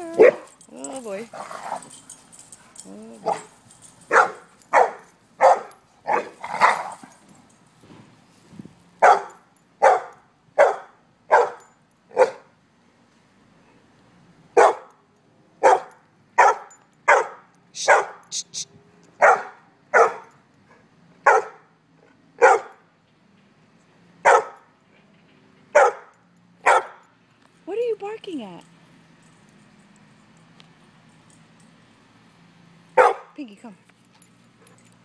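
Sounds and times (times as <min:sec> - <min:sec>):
dog barking: 0:00.1 - 0:00.5, 0:03.2 - 0:03.5, 0:04.1 - 0:06.4, 0:09.0 - 0:11.6, 0:12.2 - 0:12.5, 0:14.6 - 0:14.9, 0:15.6 - 0:18.2, 0:19.2 - 0:20.3, 0:21.2 - 0:21.7, 0:22.4 - 0:22.8, 0:24.2 - 0:24.6, 0:25.8 - 0:27.0, 0:33.0 - 0:33.4.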